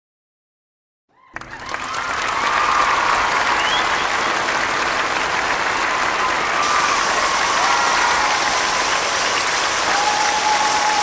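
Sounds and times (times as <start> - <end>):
small waterfall rushing: 6.6 - 11.0.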